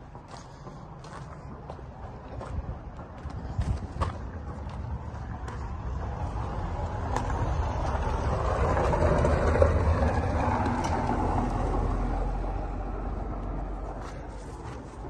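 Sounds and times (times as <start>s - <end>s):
car driving past on dirt road: 5.4s - 14.8s.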